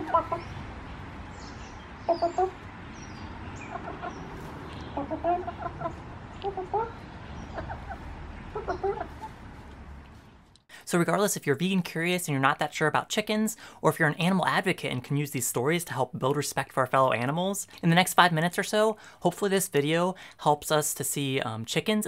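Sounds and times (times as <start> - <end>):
hens clucking: 0.0 - 0.6, 3.6 - 9.8.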